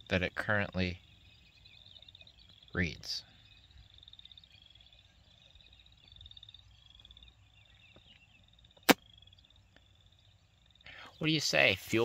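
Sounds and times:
cricket chirping: 0:00.0 - 0:12.0
sharp loud click: 0:08.8 - 0:09.0.

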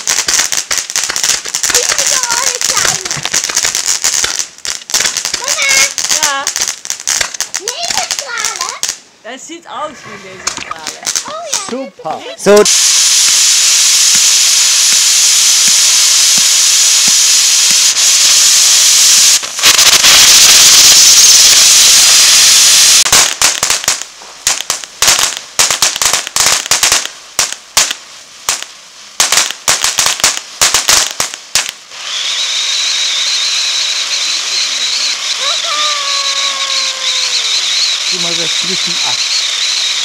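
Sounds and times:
crackling firework pops: 0:00.0 - 0:09.1, 0:10.4 - 0:11.9, 0:12.5 - 0:40.0
firework fountain hissing: 0:00.0 - 0:40.0
high thin whistle: 0:12.7 - 0:23.1, 0:32.0 - 0:40.0.

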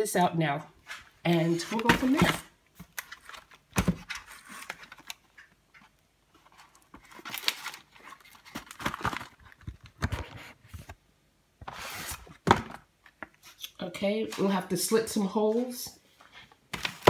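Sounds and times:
packaging rustling and crinkling: 0:00.9 - 0:11.0, 0:15.5 - 0:17.0.

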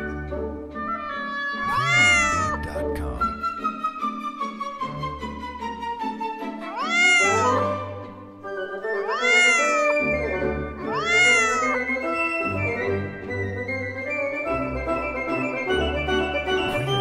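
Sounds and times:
background music: 0:00.0 - 0:17.0
cat meowing: 0:00.8 - 0:03.2, 0:06.6 - 0:07.8, 0:08.9 - 0:12.0.

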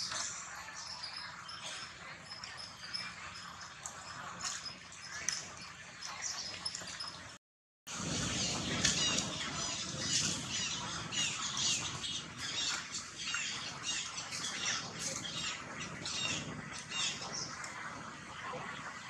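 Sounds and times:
high-pitched chirping calls: 0:00.0 - 0:07.0.

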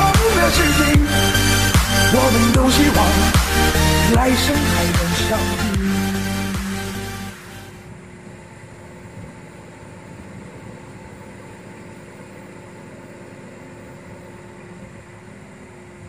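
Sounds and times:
diesel engine idling: 0:00.0 - 0:07.7.

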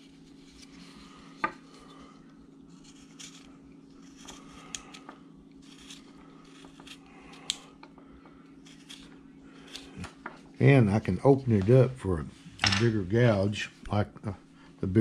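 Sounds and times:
steady low hum: 0:00.0 - 0:15.0
knife slicing and scraping wood: 0:02.7 - 0:05.0, 0:05.6 - 0:07.7, 0:08.6 - 0:10.2.

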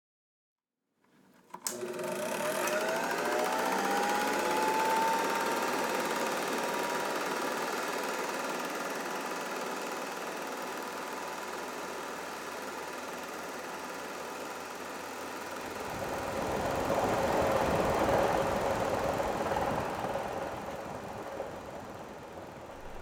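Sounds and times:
projector switch click: 0:01.5 - 0:01.9
projector motor whine: 0:01.5 - 0:17.9, 0:22.0 - 0:23.0.

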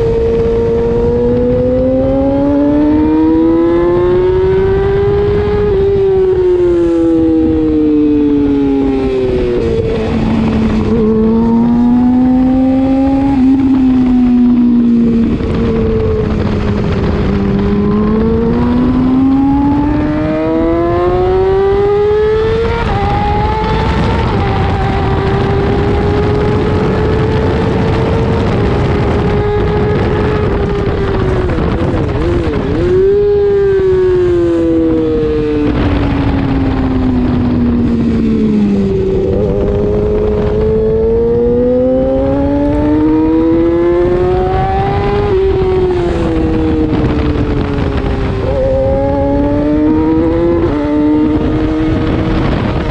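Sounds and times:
motorcycle engine pulling hard: 0:00.0 - 0:52.9
wind rush: 0:00.0 - 0:52.9.

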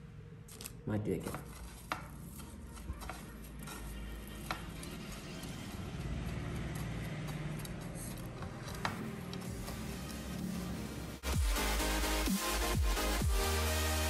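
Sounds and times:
soft crunching and rustling coating: 0:00.4 - 0:10.5.

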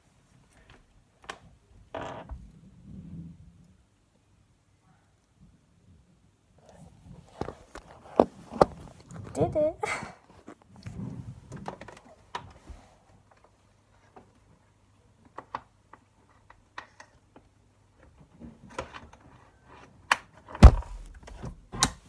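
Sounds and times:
heavy thumps: 0:20.6 - 0:21.6.

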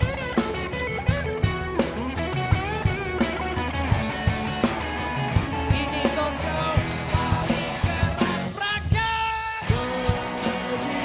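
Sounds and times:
live pop-rock band playing: 0:00.0 - 0:11.0
person singing: 0:05.5 - 0:11.0.

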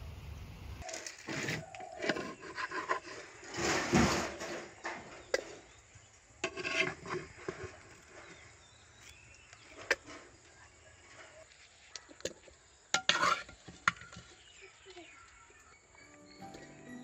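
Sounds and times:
spoon scraping watermelon rind: 0:01.1 - 0:03.4, 0:06.4 - 0:10.1.

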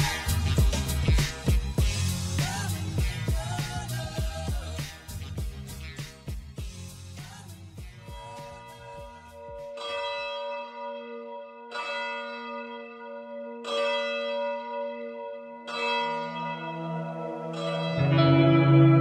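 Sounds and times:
music: 0:00.0 - 0:09.8, 0:16.2 - 0:19.0
church bell tolling: 0:08.2 - 0:19.0.

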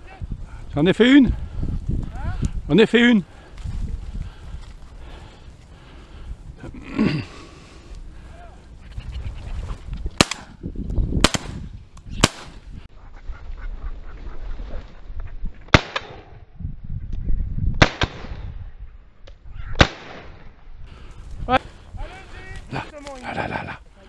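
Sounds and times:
wind rumbling on microphone: 0:00.0 - 0:24.0
shotgun shots: 0:10.2 - 0:10.5, 0:11.2 - 0:11.6, 0:12.2 - 0:12.6, 0:15.7 - 0:16.3, 0:17.8 - 0:18.4, 0:19.8 - 0:20.4.

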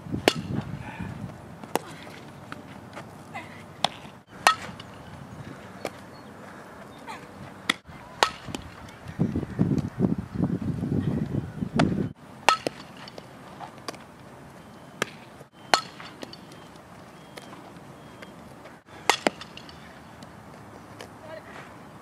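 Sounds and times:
bat hitting softball: 0:00.2 - 0:00.7, 0:03.8 - 0:05.1, 0:07.7 - 0:09.0, 0:11.8 - 0:14.0, 0:15.0 - 0:16.7, 0:19.0 - 0:20.2.

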